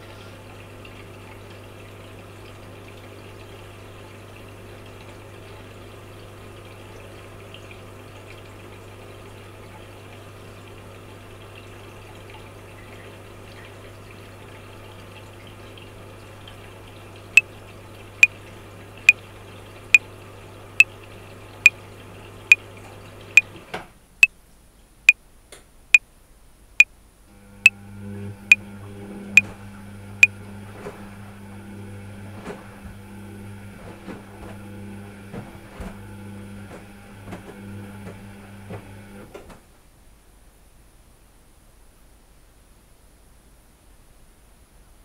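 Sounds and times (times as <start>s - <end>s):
washing machine motor hum: 27.3s - 39.5s
washing machine drum churning: 27.6s - 39.2s.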